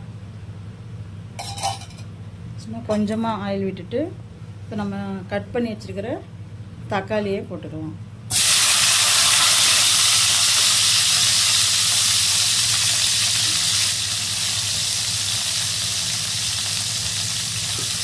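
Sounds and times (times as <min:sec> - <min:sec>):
tomatoes sizzling in hot oil: 0:08.3 - 0:18.0.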